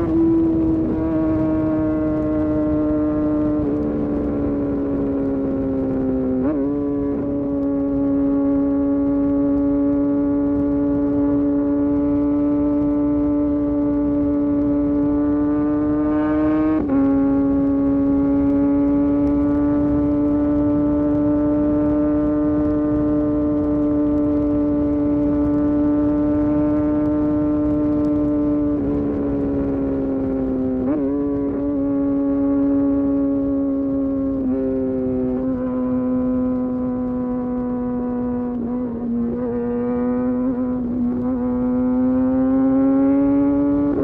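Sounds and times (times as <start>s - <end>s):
motorcycle engine at speed: 0.0s - 44.0s
wind and road noise: 0.0s - 44.0s.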